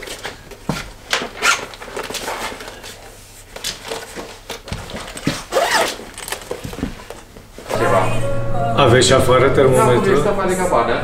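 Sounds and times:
clothes rustling: 0.0s - 7.7s
footsteps on wooden floor: 3.6s - 7.7s
zip: 5.4s - 6.4s.

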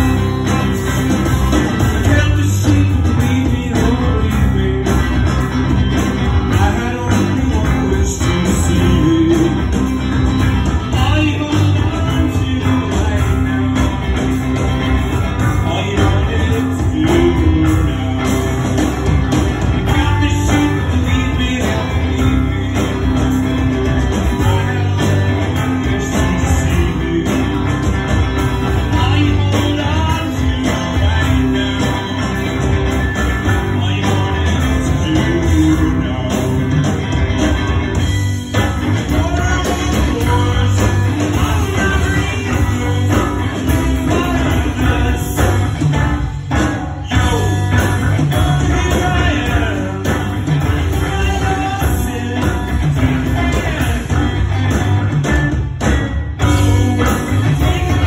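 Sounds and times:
drums: 0.0s - 58.0s
electric guitars: 0.0s - 58.0s.

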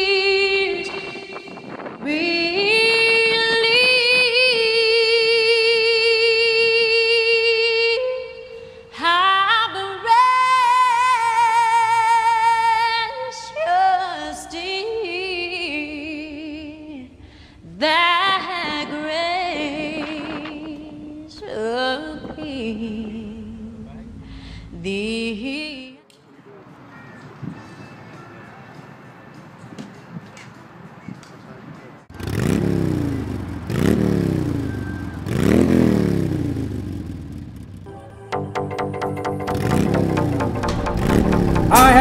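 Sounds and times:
woman singing with vibrato: 0.0s - 23.8s, 24.7s - 26.0s, 41.6s - 42.0s.

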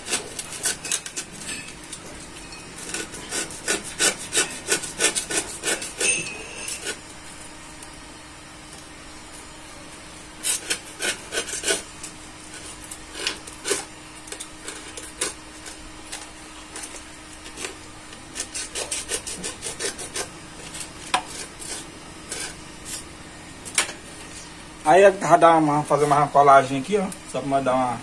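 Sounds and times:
sandpaper rasping: 0.0s - 1.2s, 2.8s - 7.0s, 10.4s - 11.9s, 17.5s - 23.0s
faint steady hum: 0.0s - 28.0s.

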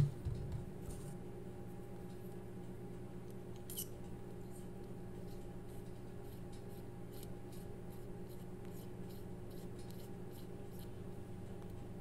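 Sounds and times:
low electrical hum: 0.0s - 12.0s
metal pen threads scratching: 3.6s - 4.0s, 5.2s - 11.0s.

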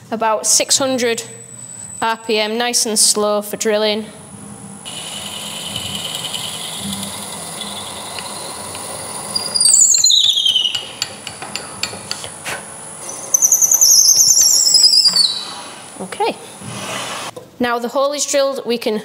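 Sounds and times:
wood lathe turning: 4.9s - 9.8s
drill bit squealing: 4.9s - 11.1s, 13.0s - 15.6s.

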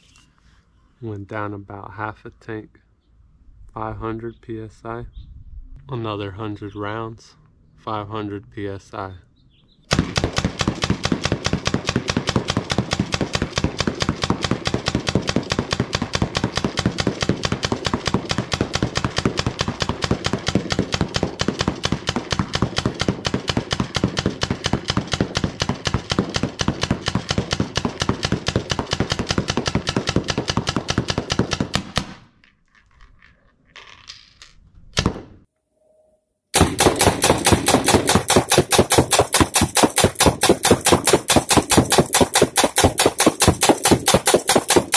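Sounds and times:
paintball gun firing: 9.9s - 32.4s, 35.0s - 35.4s, 36.6s - 44.9s.

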